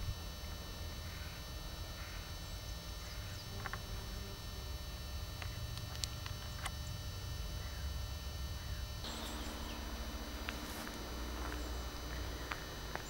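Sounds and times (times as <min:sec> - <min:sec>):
faint bird chirps: 0:08.6 - 0:13.0.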